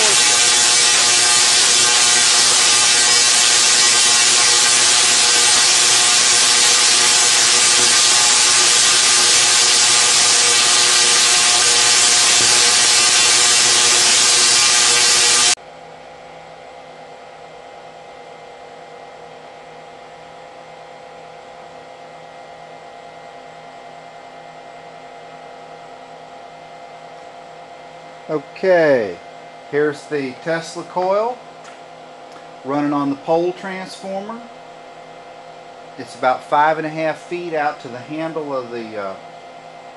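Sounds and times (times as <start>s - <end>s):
tesla coil spark crackle: 0.0s - 15.6s
steady electrical hum: 0.0s - 39.9s.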